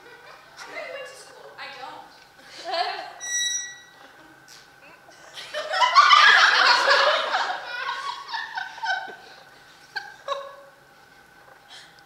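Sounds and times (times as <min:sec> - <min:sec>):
audience laughing: 0:05.1 - 0:10.7.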